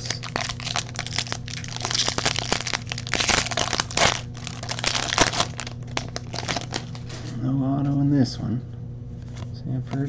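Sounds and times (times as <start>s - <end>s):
foil wrapper crinkling: 0.0s - 7.2s.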